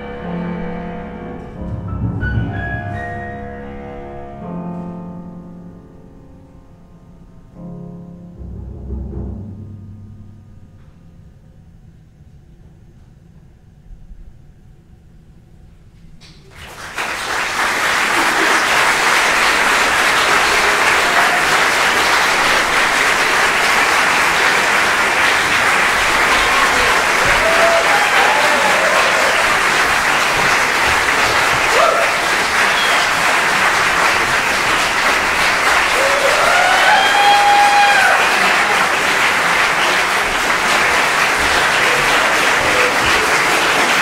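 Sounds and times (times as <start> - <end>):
audience applauding: 16.4 - 44.0.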